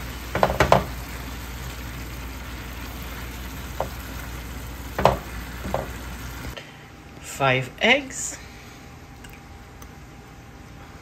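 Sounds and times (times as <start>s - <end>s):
vegetables sizzling in oil: 0.0s - 6.6s.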